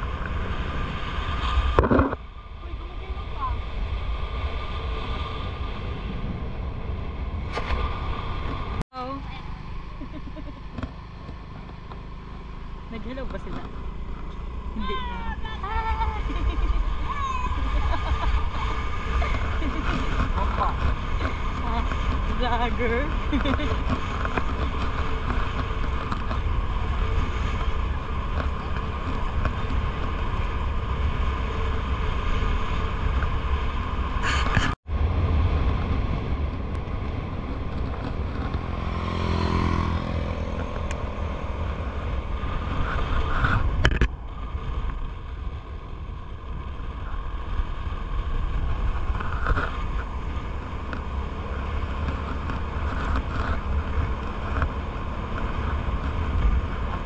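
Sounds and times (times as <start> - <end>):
scooter engine running: 8.9 - 57.0
wind buffeting microphone: 13.0 - 57.0.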